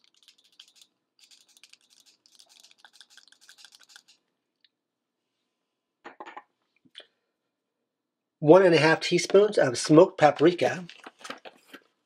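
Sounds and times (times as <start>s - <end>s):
spice jar shaking and tapping: 0.0s - 4.2s.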